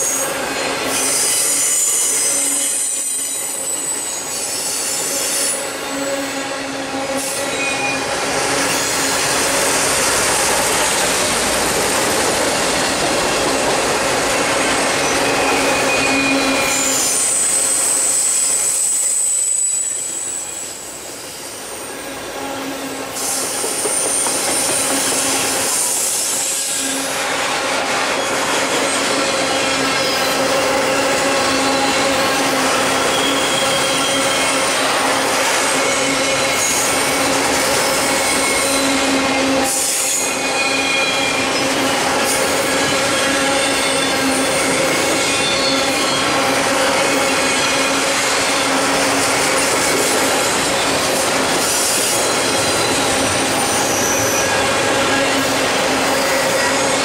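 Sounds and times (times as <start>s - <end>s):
high-pitched wheel squeals: 0.0s - 9.4s, 15.0s - 25.8s, 29.4s - 34.8s, 37.7s - 49.0s, 51.7s - 57.0s
freight train wheels rumbling: 0.0s - 57.0s.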